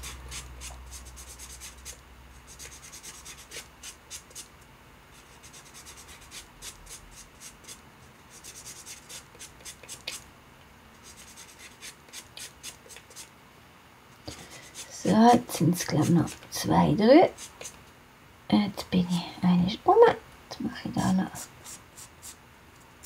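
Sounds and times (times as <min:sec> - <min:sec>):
sanding sponge scratching clay: 0:00.0 - 0:04.5, 0:05.2 - 0:10.2, 0:11.0 - 0:13.3, 0:17.3 - 0:17.8.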